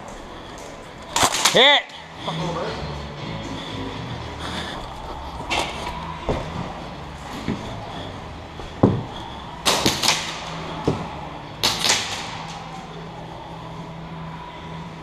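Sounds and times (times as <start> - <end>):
airsoft gun cracks: 9.7 - 10.6, 11.6 - 12.6.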